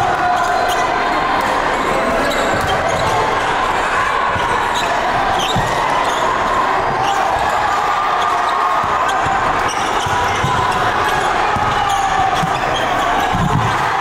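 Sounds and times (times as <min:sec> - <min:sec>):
murmur of crowd voices: 0:00.0 - 0:14.0
basketball bouncing on wooden court: 0:08.8 - 0:13.8.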